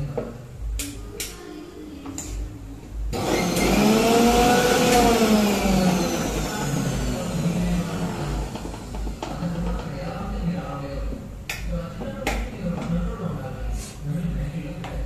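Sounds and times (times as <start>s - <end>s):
mixer grinder motor whirring: 3.1s - 9.9s.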